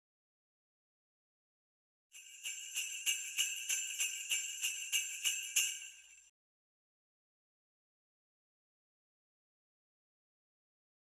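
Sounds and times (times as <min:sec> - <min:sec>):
sleigh bells jingling: 0:02.2 - 0:06.3.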